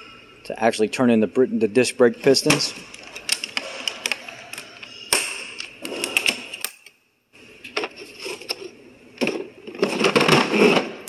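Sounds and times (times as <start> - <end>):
plastic cases knocking together: 9.2 - 11.0.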